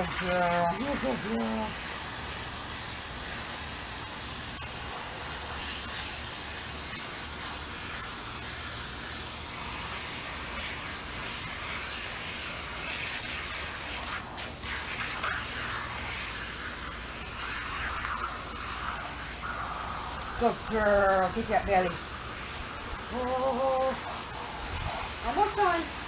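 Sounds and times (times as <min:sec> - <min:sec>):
hose spraying water: 0:00.0 - 0:26.0.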